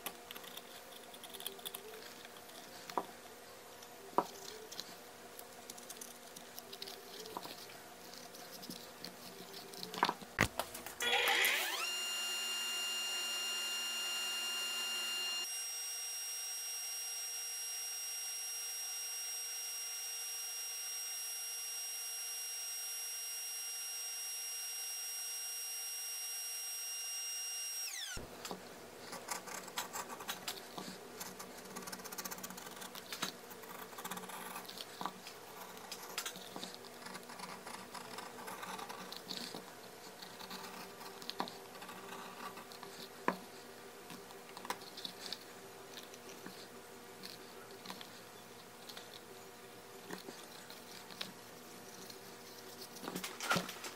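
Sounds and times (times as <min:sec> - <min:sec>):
belt grinder whine: 0:11.0 - 0:28.3.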